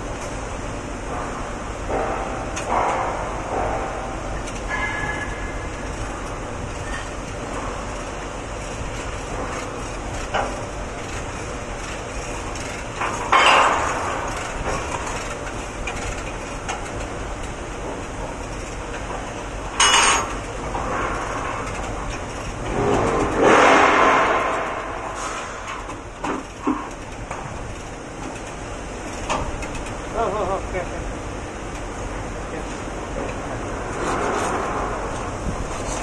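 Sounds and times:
machinery hum: 0.0 - 36.0
loud metal clanks: 1.1 - 5.9, 12.6 - 15.4, 19.8 - 21.9, 22.5 - 26.9.

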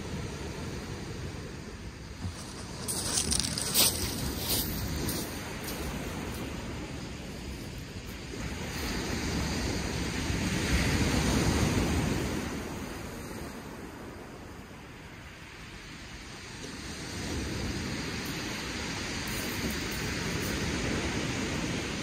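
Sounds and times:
surf breaking on shingle beach: 2.0 - 12.8.

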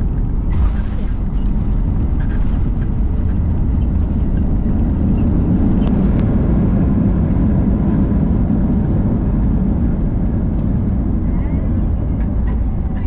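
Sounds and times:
vehicle rumble from inside: 0.0 - 13.0.

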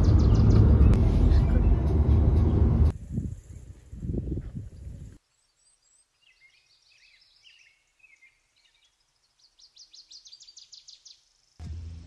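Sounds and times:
small songbirds chirping: 0.0 - 1.8, 2.5 - 11.6.

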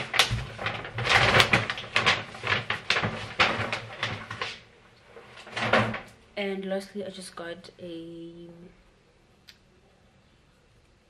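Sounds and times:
plastic bags rustling and crinkling: 0.0 - 6.2.

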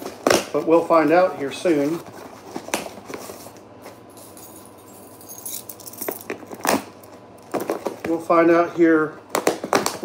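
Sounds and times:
keys jingling: 4.1 - 7.2.

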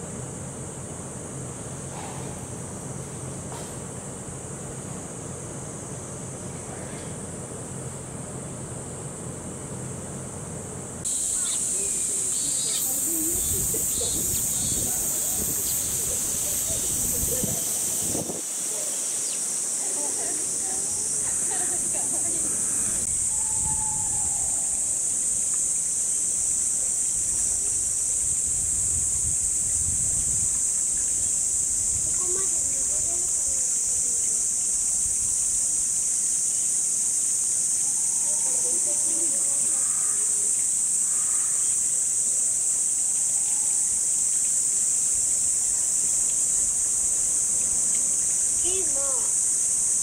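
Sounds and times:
cicadas chorus: 0.0 - 50.0
wind rumble on microphone: 13.1 - 18.4, 27.2 - 33.5.

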